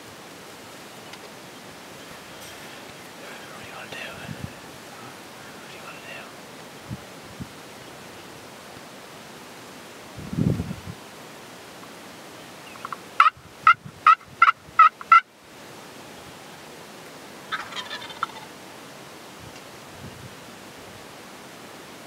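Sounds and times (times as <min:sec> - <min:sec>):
faint turkey call: 0:12.6 - 0:15.3, 0:17.5 - 0:18.5
turkey gobbling: 0:12.8 - 0:15.2, 0:17.5 - 0:18.5.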